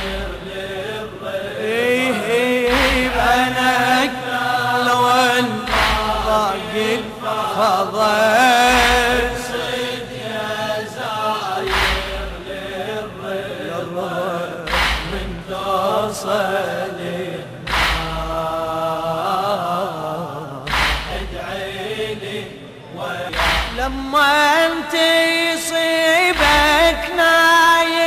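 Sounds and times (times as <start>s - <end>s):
heavy thump: 0.0s - 0.4s, 2.7s - 3.4s, 5.7s - 6.4s, 11.7s - 12.6s, 14.7s - 15.5s, 17.7s - 18.4s, 20.7s - 21.5s, 23.3s - 24.0s
person chanting: 0.0s - 28.0s.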